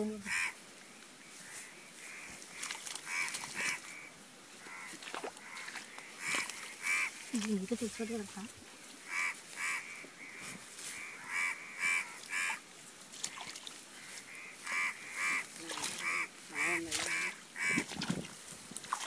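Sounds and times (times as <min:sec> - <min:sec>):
animal short nasal calls: 0:09.1 - 0:12.6, 0:14.3 - 0:17.9.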